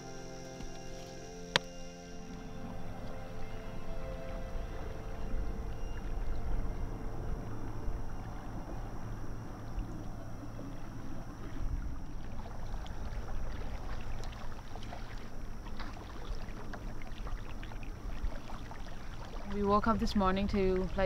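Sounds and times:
lake water lapping: 0:00.0 - 0:21.0
low rumble of wind: 0:00.0 - 0:21.0.

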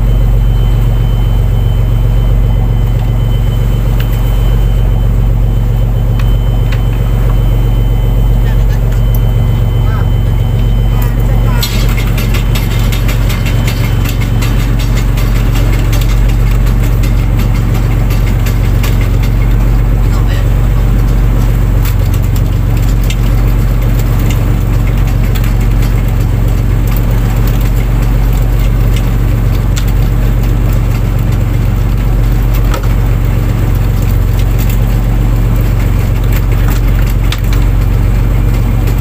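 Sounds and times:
boat engine droning: 0:00.0 - 0:39.0
knocks and clicks: 0:10.1 - 0:19.7.

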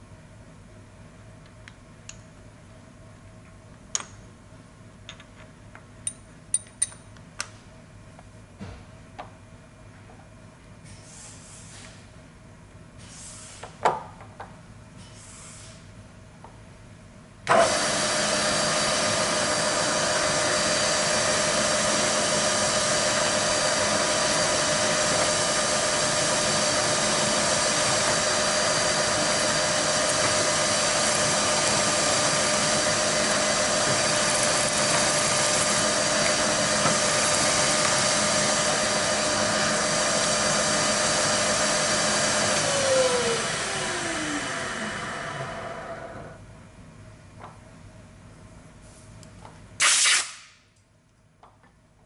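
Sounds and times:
milling machine spindle whine: 0:17.5 - 0:46.4.

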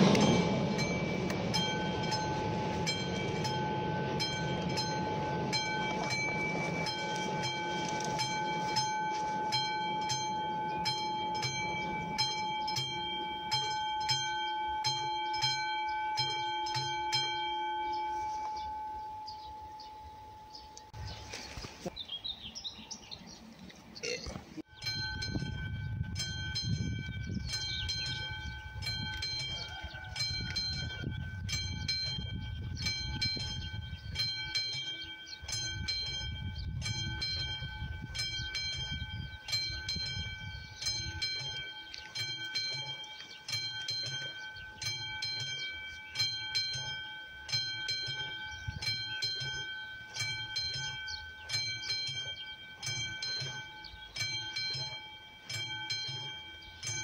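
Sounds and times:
low rumble: 0:00.0 - 0:13.6
level-crossing warning bell ringing: 0:00.0 - 0:21.1, 0:24.6 - 0:57.0.

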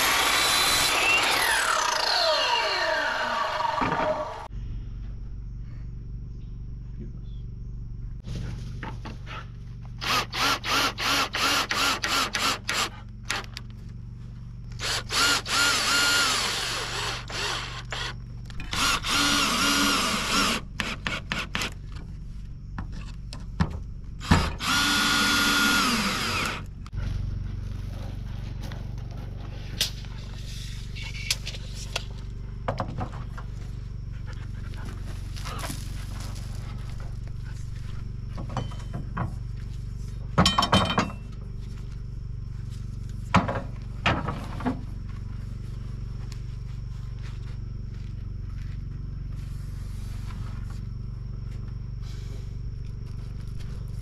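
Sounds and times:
power drill running in bursts: 0:00.0 - 0:03.8, 0:14.8 - 0:20.6, 0:24.2 - 0:26.7
low steady hum: 0:04.3 - 0:10.0.

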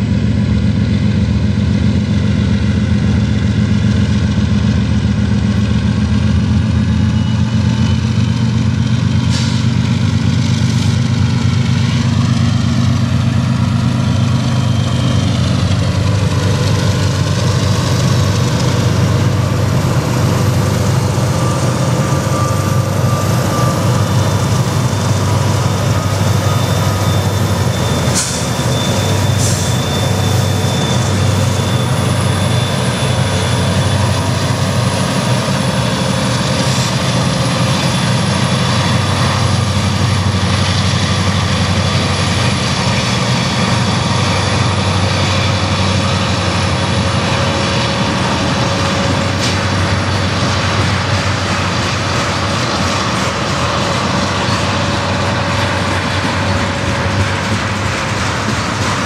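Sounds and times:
diesel locomotives droning: 0:00.0 - 0:59.0.

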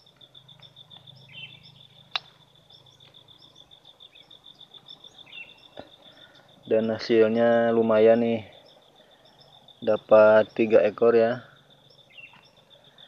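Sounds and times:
insect fast-pulsing high trill: 0:00.0 - 0:13.0
small bird chirps: 0:00.0 - 0:13.0
sharp click: 0:02.1 - 0:02.4.

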